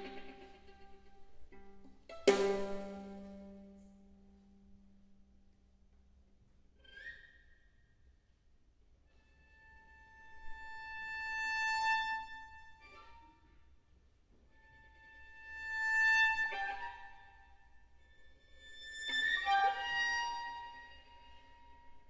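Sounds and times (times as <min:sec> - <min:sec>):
violin bowing sustained notes: 0:00.0 - 0:03.8, 0:14.6 - 0:22.0.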